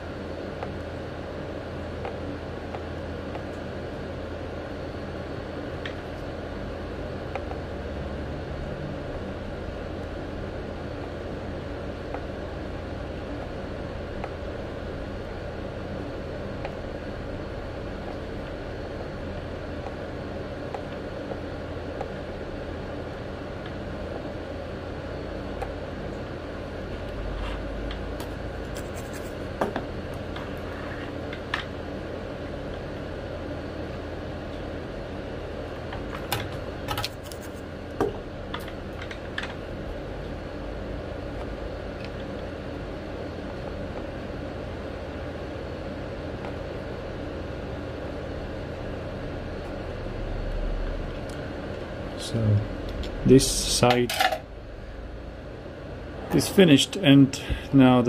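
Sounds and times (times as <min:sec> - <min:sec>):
steady background hum: 0:00.0 - 0:58.0.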